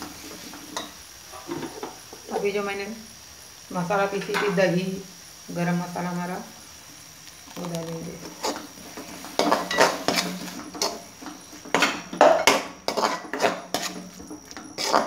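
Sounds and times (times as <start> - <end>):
metal spoon scraping a pan: 8.2 - 15.0.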